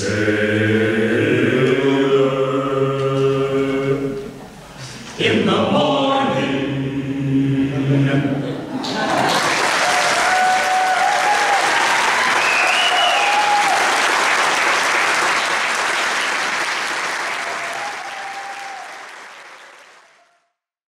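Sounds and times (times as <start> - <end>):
audience applauding: 8.8 - 20.4.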